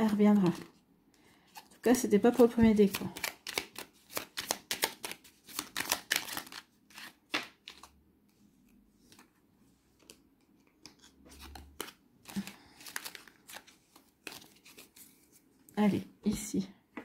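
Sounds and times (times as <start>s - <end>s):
cards shuffled snapping: 2.9s - 7.9s, 10.0s - 14.9s.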